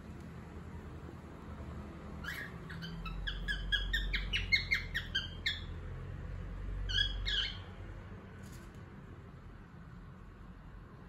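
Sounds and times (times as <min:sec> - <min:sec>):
cockatiel chirping: 0:02.2 - 0:05.7, 0:06.9 - 0:07.7.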